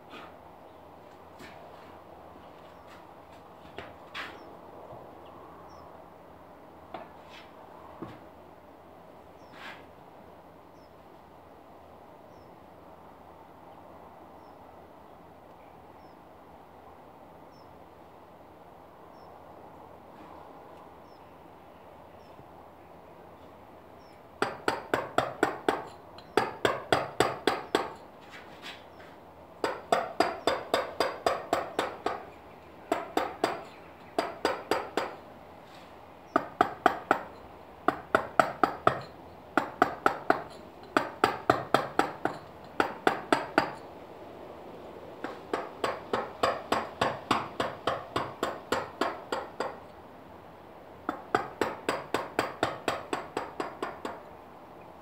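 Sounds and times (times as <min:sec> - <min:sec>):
mallet striking chisel on stone: 0:24.4 - 0:28.0, 0:29.6 - 0:32.2, 0:32.9 - 0:35.2, 0:37.9 - 0:43.8, 0:51.1 - 0:54.2.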